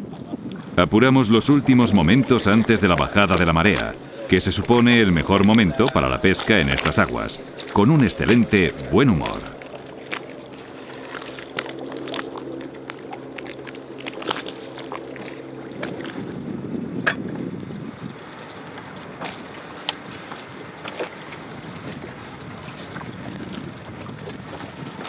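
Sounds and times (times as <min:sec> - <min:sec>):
wind on microphone: 0:00.0 - 0:09.6, 0:15.7 - 0:25.0
water lapping against boat: 0:00.0 - 0:25.0
outboard motor idling: 0:00.8 - 0:25.0.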